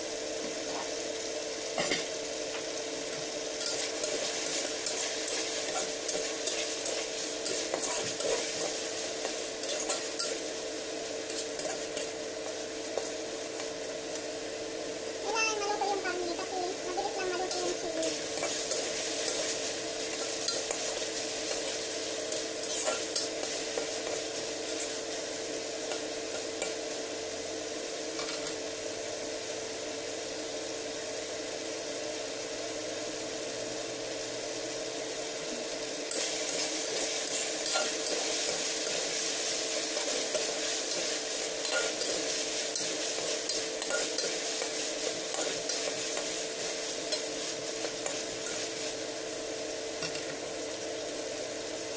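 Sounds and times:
meat sizzling in oil: 0.0s - 51.9s
steady hum: 0.0s - 51.9s
spatula scraping a wok: 3.6s - 10.6s, 11.2s - 13.3s, 17.4s - 26.8s, 36.1s - 49.0s.

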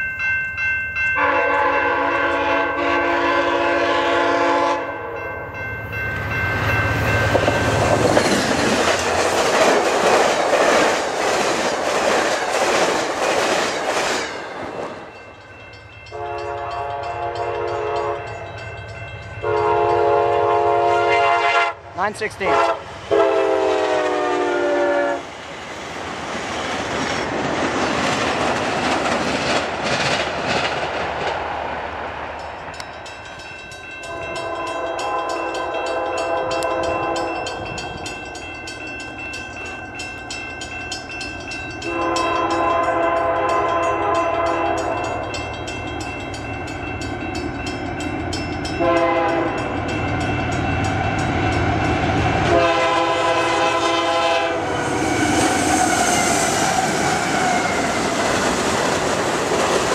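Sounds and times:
crossing bells ringing: 0.0s - 10.2s, 12.4s - 23.5s, 32.3s - 53.6s
locomotive horn blasts: 1.2s - 5.2s, 16.1s - 18.4s, 19.4s - 21.8s, 22.4s - 25.2s, 34.1s - 37.4s, 41.8s - 45.1s, 48.8s - 49.6s, 52.4s - 54.9s
train horn: 1.2s - 5.2s, 16.1s - 18.4s, 19.4s - 25.3s, 34.0s - 37.6s, 41.8s - 45.3s, 48.7s - 49.7s, 51.4s - 57.9s
train cars rolling past: 4.5s - 59.9s.

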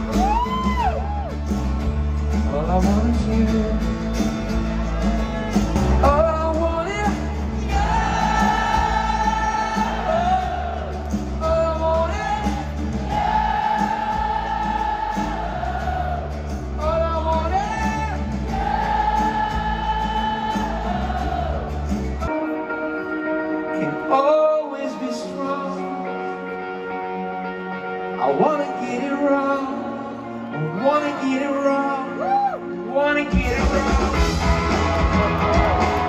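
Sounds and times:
steady bass: 0.0s - 22.3s, 33.4s - 36.0s
electric guitar: 33.4s - 36.0s.

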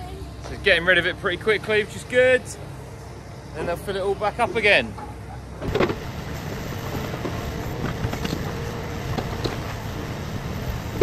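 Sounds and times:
diesel engine running: 0.0s - 11.0s
hydraulic mechanical whine: 5.0s - 11.0s.

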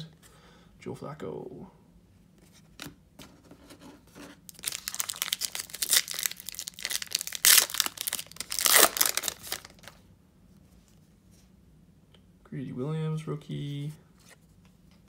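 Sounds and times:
wrapper tearing and crinkling: 4.5s - 10.0s.

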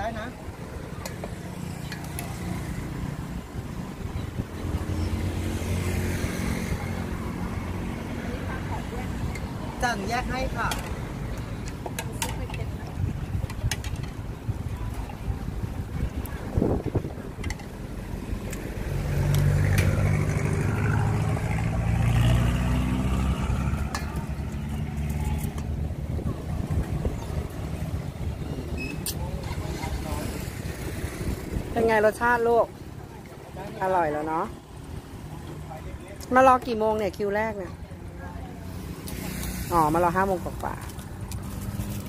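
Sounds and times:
vehicle engine passing by: 4.6s - 9.9s, 16.4s - 36.1s.

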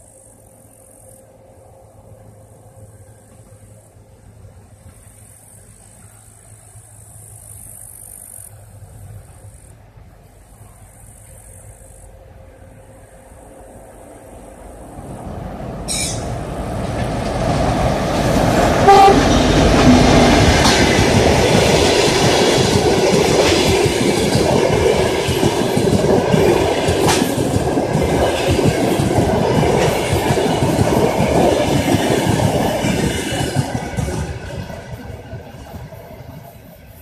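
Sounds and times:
diesel train rumble: 0.0s - 37.0s
train horn blast: 18.8s - 20.4s.

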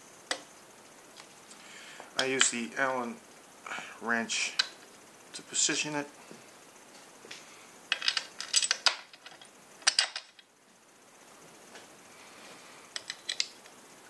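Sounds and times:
metal bolts and wrench clinking: 7.9s - 10.4s.

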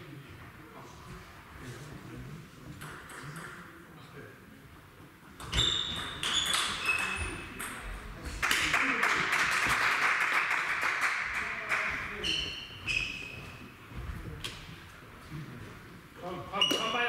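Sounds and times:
table tennis ball bouncing: 5.4s - 8.0s
people clapping in a hall: 8.4s - 12.2s.

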